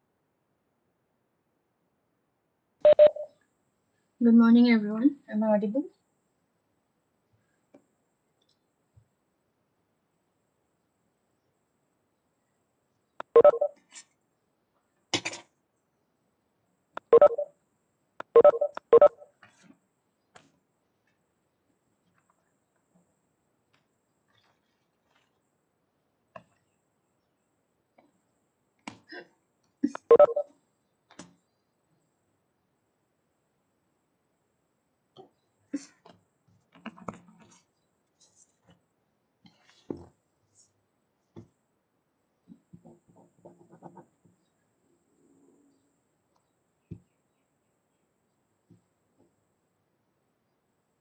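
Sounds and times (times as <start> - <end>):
short electronic beeps: 2.9 - 3.3, 13.2 - 13.8, 17.0 - 17.5, 18.3 - 19.3, 30.0 - 30.5.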